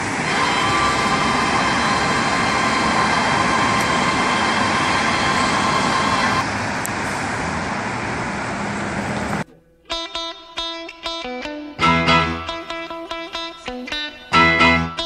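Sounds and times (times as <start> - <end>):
cars driving past: 0.0 - 9.4.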